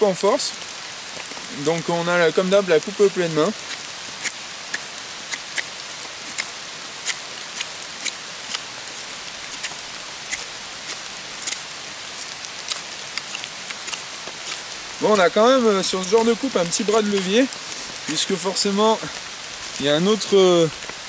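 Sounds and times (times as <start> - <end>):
rain hissing: 0.0 - 21.0
knife shaving dry wood: 3.6 - 18.2.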